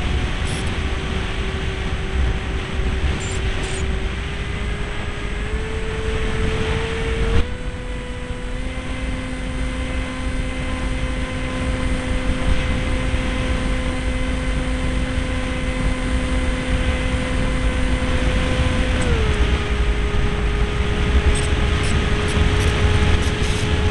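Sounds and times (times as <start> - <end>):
model plane motor whine: 0.0 - 23.9
wind rush on microphone: 0.0 - 23.9.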